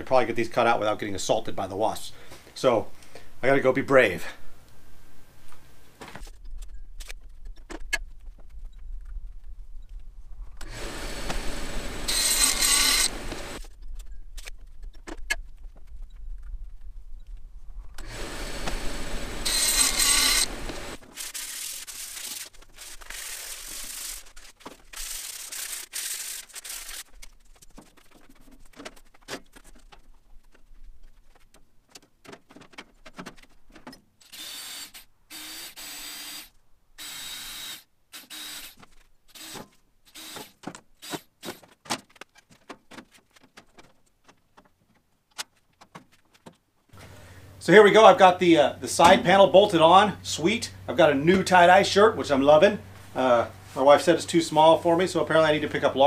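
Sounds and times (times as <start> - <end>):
table saw cutting wood: 10.6 - 13.6, 18.0 - 22.4
knocks and clicks of handling: 27.7 - 34.2, 40.4 - 46.9.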